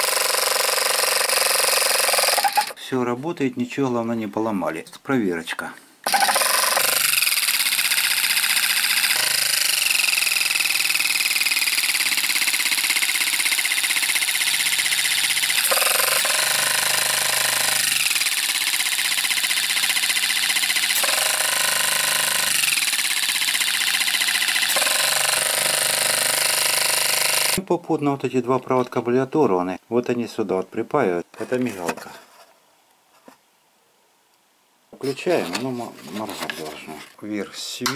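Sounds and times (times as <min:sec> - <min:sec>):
tyre inflator compressor running: 0:00.0 - 0:02.8, 0:06.0 - 0:27.6.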